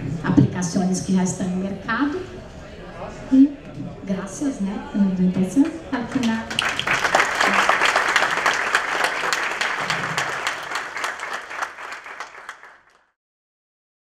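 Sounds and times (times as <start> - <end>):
audience applauding: 6.1 - 13.1.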